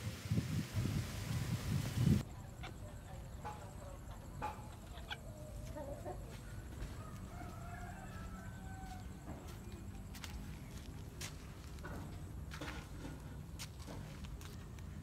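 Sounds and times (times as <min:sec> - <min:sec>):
chickens clucking: 0:02.4 - 0:07.6.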